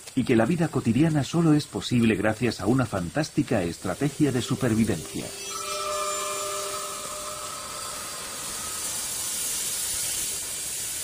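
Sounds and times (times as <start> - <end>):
steady hiss: 0.0 - 11.0
faint held tones: 4.1 - 9.8.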